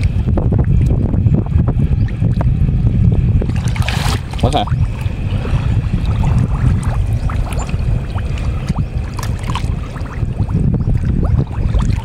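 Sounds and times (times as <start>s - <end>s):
low rumble: 0.0s - 12.0s
mud popping and gurgling: 3.4s - 12.0s
muddy water sloshing: 3.4s - 12.0s.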